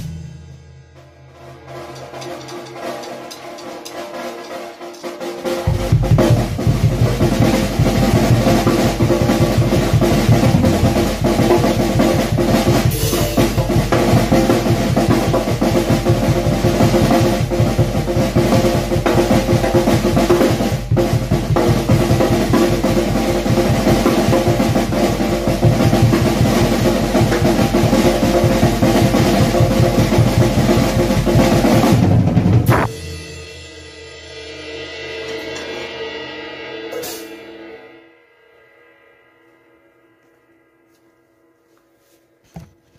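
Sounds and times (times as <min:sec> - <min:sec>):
bass drum: 0:05.7 - 0:33.2
snare drum strokes: 0:29.9 - 0:33.0.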